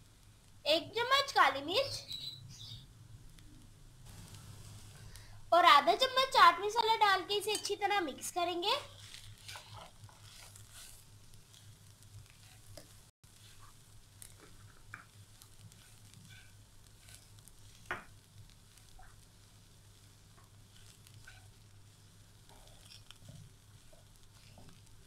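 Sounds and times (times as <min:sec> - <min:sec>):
light sizzle: 0:00.0 - 0:25.0
spatula scraping in a wok: 0:05.9 - 0:25.0.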